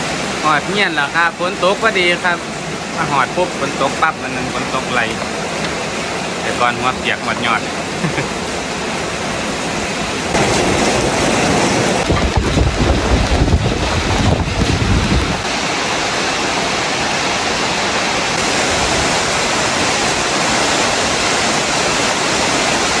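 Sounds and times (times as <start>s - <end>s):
heavy rain hissing: 0.0s - 23.0s
wind buffeting microphone: 8.6s - 23.0s.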